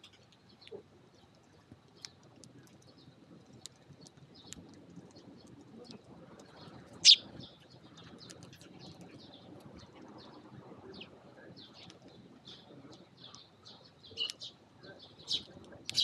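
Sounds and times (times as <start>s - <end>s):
sparrows chirping: 6.5s - 16.0s.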